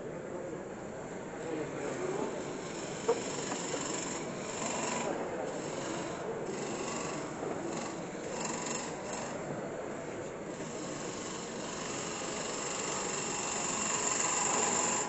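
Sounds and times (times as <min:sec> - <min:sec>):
wood lathe gouge cutting: 0:02.3 - 0:09.4, 0:10.5 - 0:15.0.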